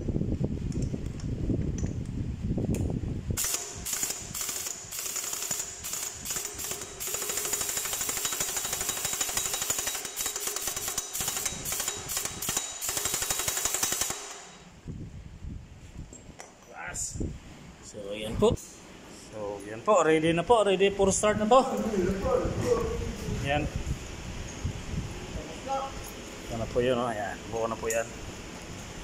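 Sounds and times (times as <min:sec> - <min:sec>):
impact wrench hammering: 0:03.4 - 0:14.7.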